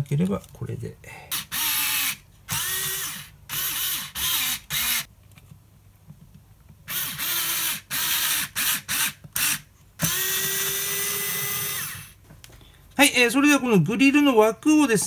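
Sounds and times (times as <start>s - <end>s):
electric screwdriver whining: 1.3s - 5.1s, 6.9s - 12.2s.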